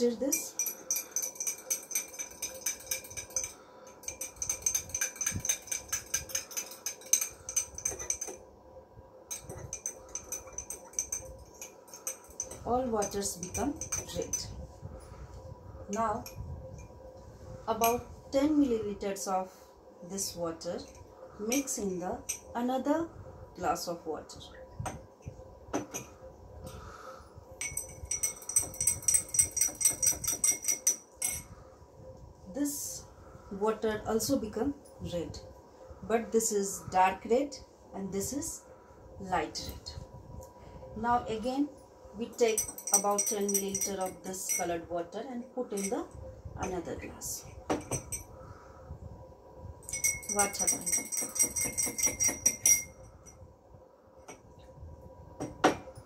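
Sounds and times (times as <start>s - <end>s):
spoon clinking in glass: 0.3s - 8.4s, 9.3s - 14.5s, 27.6s - 31.5s, 42.4s - 44.8s, 45.8s - 46.0s, 49.9s - 53.0s.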